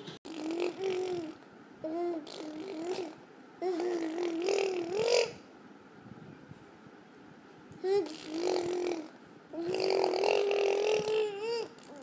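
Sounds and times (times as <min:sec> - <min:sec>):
toddler humming: 0:07.8 - 0:12.0.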